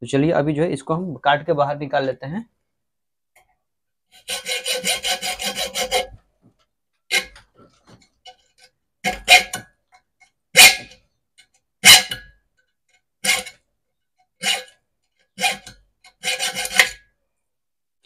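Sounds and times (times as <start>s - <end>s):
knife scraping plastic: 7.1s - 9.6s, 13.2s - 13.6s, 14.4s - 17.0s.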